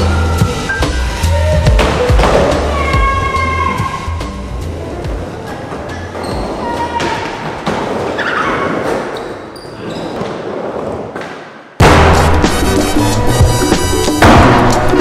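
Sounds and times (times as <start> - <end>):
loud music with a beat: 0.0 - 4.4, 11.8 - 15.0
skateboards rolling on ramps: 4.6 - 11.6
thuds of wheels and boards: 14.2 - 15.0.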